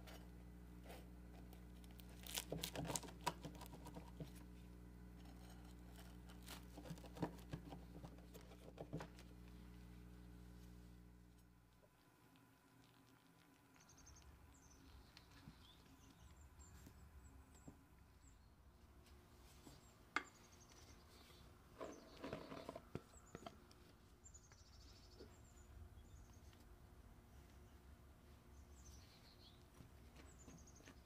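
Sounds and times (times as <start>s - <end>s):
faint birds chirping: 6.8s - 31.0s.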